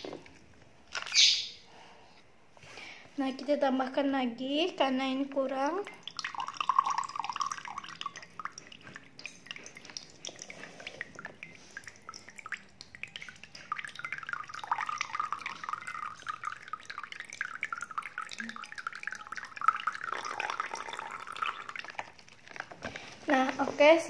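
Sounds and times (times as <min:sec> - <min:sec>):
water dripping into glass mug: 0:05.3 - 0:22.8
water pouring stream: 0:05.9 - 0:22.8.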